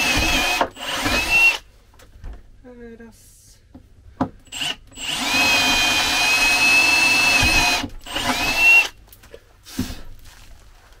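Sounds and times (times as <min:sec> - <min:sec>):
drill motor whine: 0:00.0 - 0:01.6, 0:04.5 - 0:08.9.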